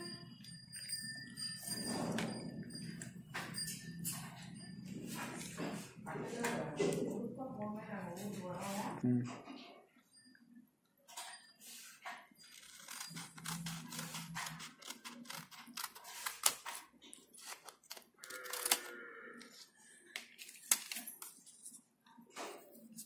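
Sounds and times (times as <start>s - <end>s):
paper crackling: 12.4s - 18.9s
scissors snipping paper: 12.4s - 18.9s, 19.5s - 21.4s.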